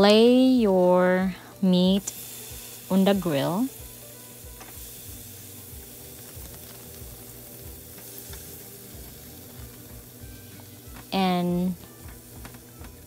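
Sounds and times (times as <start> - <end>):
meat sizzling on a grill: 0.0 - 13.0
small crackles: 4.6 - 11.2, 12.0 - 13.0.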